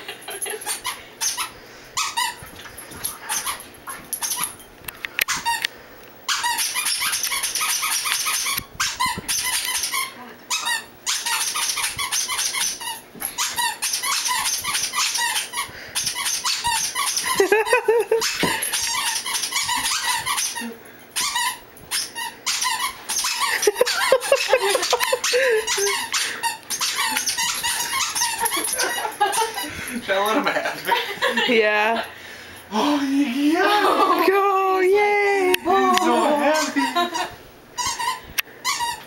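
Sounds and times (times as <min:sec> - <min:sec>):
squeaky dog toys squeaking: 0:00.6 - 0:02.5, 0:03.2 - 0:04.6, 0:05.3 - 0:05.6, 0:06.3 - 0:29.8, 0:36.1 - 0:39.0.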